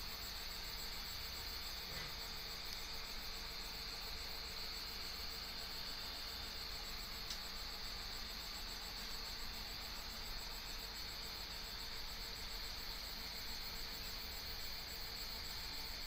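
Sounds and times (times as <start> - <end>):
small tick: 2.7 - 2.9, 7.2 - 7.5.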